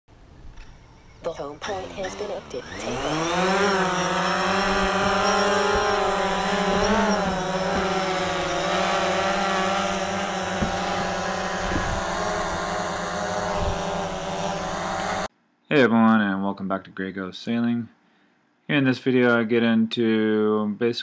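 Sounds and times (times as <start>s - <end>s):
drone propellers buzzing: 1.6s - 15.3s.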